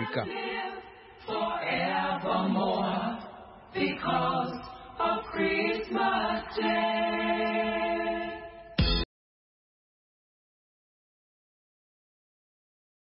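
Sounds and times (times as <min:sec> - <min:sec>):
a cappella group singing jingle: 0:00.0 - 0:09.0.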